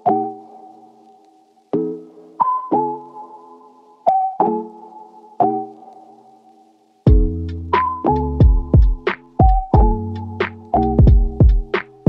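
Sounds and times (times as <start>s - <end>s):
drum beat: 7.1s - 7.4s, 8.4s - 10.0s, 11.0s - 12.0s.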